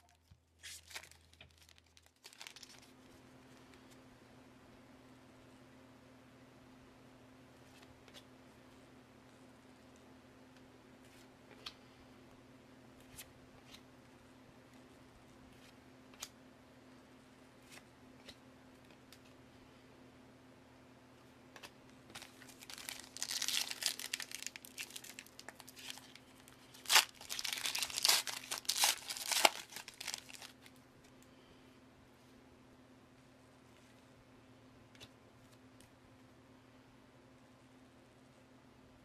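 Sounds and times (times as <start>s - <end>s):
wrapper crinkling and tearing: 0.6s - 3.0s, 22.1s - 30.7s.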